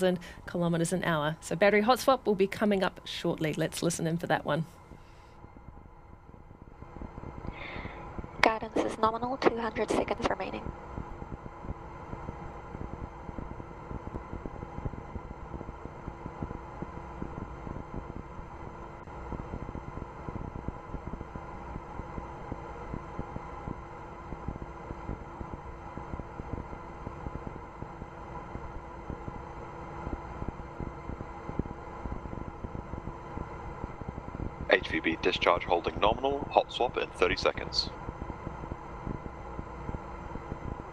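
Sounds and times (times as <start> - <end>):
faint steady hum tones: 0.0 - 40.9
rocket engine rumbling hiss: 6.6 - 18.2, 30.8 - 40.9.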